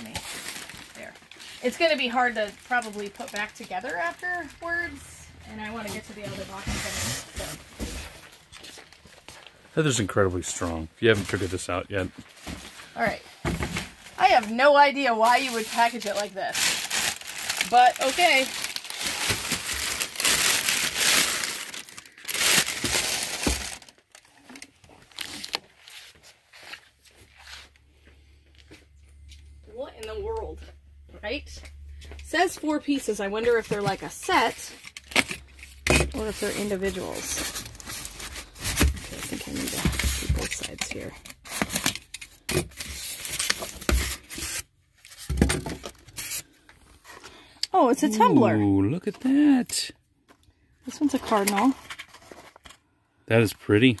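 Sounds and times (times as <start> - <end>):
plastic bag crinkling: 0.0 - 4.9, 14.0 - 26.0, 34.9 - 43.8
styrofoam rubbing and scraping: 5.7 - 7.7, 36.2 - 40.6, 42.8 - 44.7.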